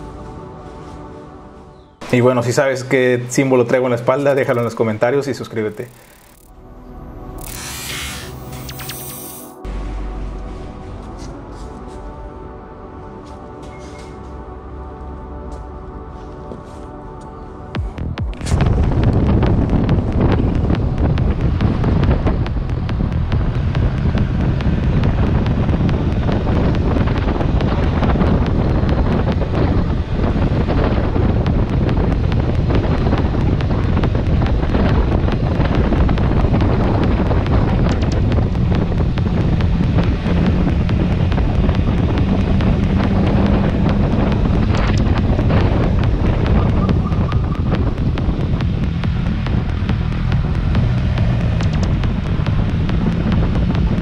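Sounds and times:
motorcycle engine humming: 0:02.9 - 0:54.0
wind buffeting microphone: 0:17.7 - 0:54.0.

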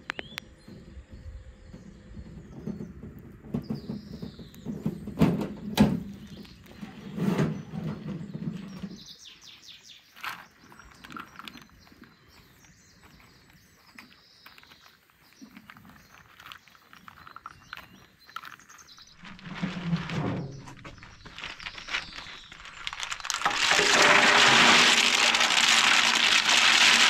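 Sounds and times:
birds chirping: 0:00.0 - 0:24.2
wheelbarrow rumbling: 0:01.6 - 0:09.2, 0:19.0 - 0:27.0
wheelbarrow knocks: 0:02.4 - 0:06.5, 0:19.4 - 0:21.2, 0:23.3 - 0:27.0.

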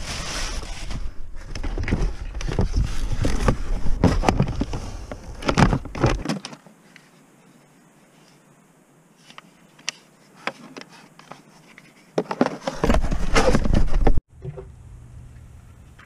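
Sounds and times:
cardboard flaps rustling and scraping: 0:00.0 - 0:07.0, 0:09.2 - 0:14.2.

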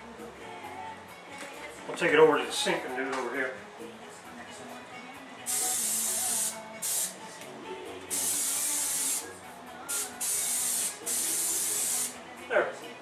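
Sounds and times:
cooking spray hissing: 0:05.5 - 0:07.2, 0:08.1 - 0:09.3, 0:09.9 - 0:12.2.

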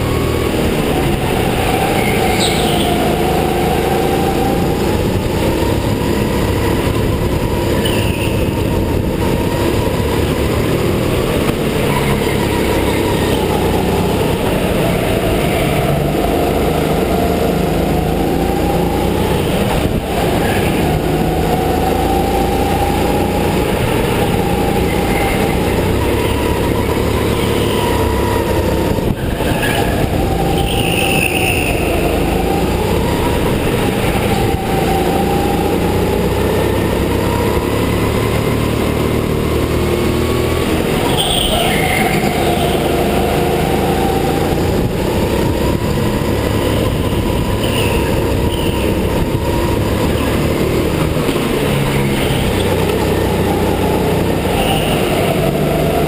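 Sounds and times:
go-kart motor whine: 0:00.0 - 0:56.0
rumble of tyres and chassis: 0:00.0 - 0:56.0.

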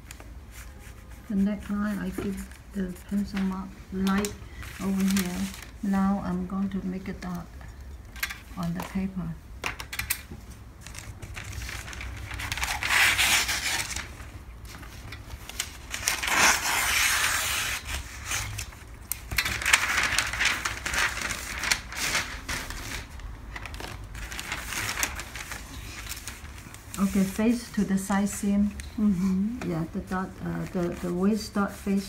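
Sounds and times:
paper rustling and crinkling: 0:00.0 - 0:06.0, 0:09.6 - 0:32.0
shears cutting paper: 0:10.9 - 0:14.1, 0:15.5 - 0:23.0.

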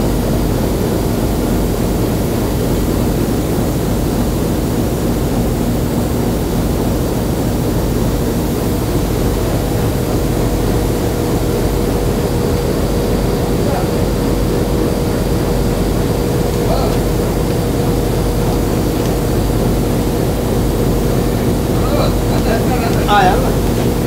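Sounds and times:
diesel locomotive engine drone: 0:00.0 - 0:24.0
steady higher tone: 0:09.0 - 0:24.0.

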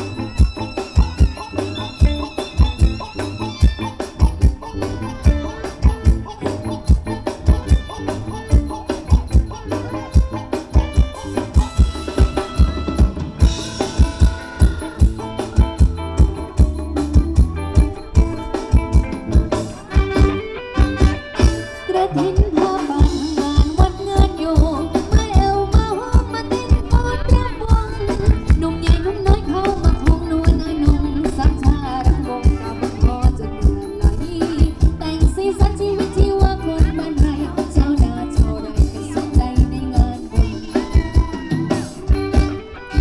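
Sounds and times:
drum beat: 0:00.0 - 0:21.7, 0:22.4 - 0:42.6
bass: 0:00.0 - 0:43.0
electric guitar: 0:00.0 - 0:43.0
person singing: 0:21.7 - 0:42.6.

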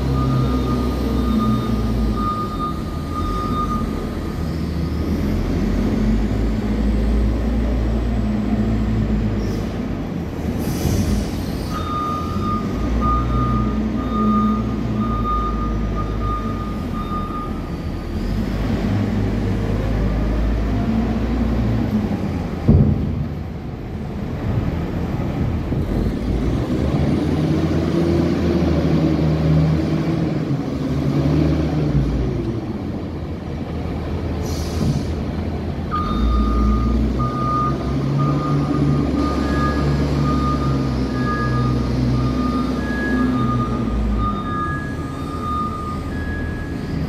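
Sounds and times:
reversing alarm beeps: 0:00.0 - 0:04.3, 0:11.7 - 0:18.0, 0:35.9 - 0:47.0
wheel loader engine under load: 0:00.0 - 0:47.0.

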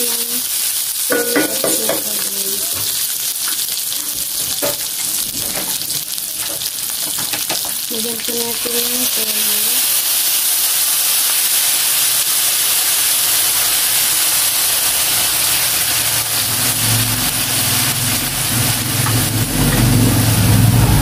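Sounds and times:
meat sizzling in a pot: 0:00.0 - 0:21.0
low engine-like hum: 0:19.0 - 0:21.0.

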